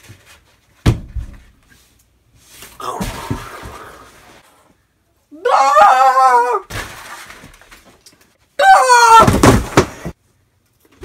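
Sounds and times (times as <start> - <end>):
shrill cry: 5.3 - 6.7, 8.6 - 9.6.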